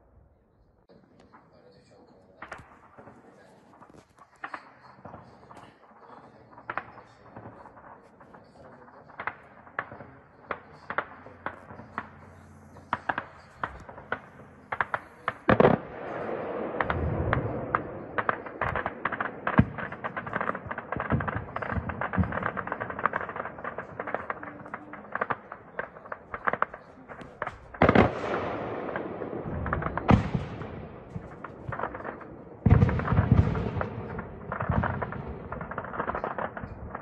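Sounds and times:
small-arms gunfire: 9.0s - 37.0s.

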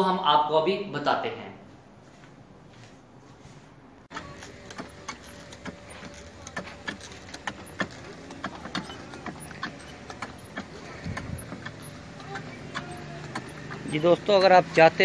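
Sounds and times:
footsteps: 1.7s - 15.0s
hose handling noise: 4.1s - 15.0s.

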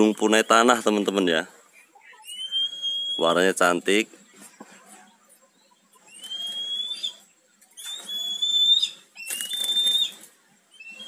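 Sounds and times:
high whistles: 2.2s - 3.4s, 6.1s - 7.2s, 7.8s - 11.0s.

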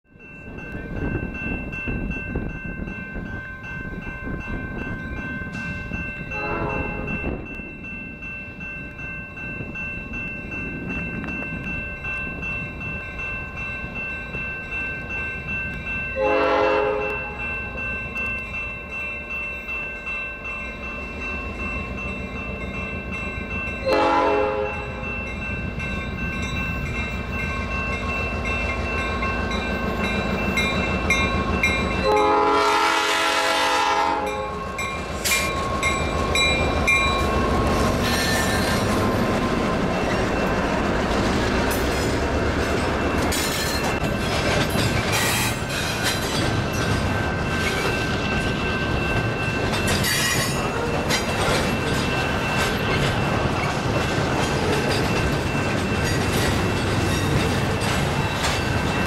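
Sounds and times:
crossing bells ringing: 0.1s - 59.0s
locomotive air horn: 6.4s - 7.1s, 16.2s - 17.4s, 23.8s - 24.8s, 32.0s - 34.6s
locomotive rumble: 20.0s - 59.0s.

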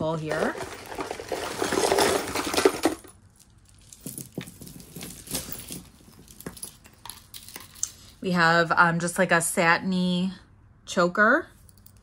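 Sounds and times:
jewelry jingling and clinking: 0.2s - 8.2s.

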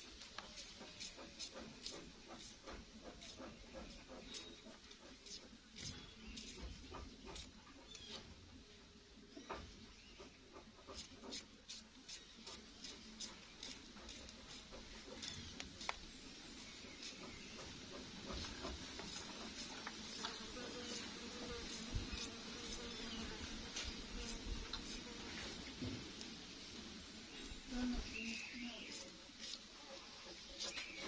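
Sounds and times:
faint steady hiss: 18.3s - 31.0s.

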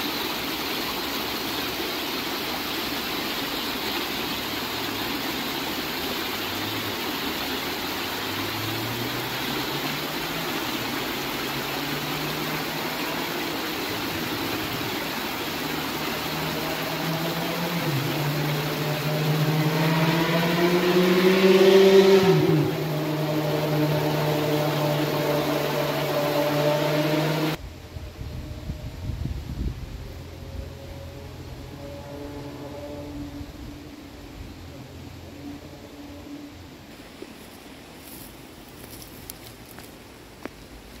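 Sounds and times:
rocky stream rushing: 0.0s - 27.6s, 34.0s - 41.0s
vehicle engine hum: 0.0s - 41.0s.

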